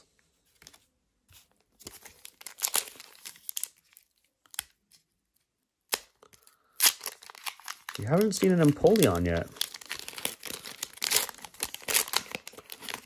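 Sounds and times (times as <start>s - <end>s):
foil wrapper crinkling: 1.8s - 4.6s, 6.3s - 13.0s.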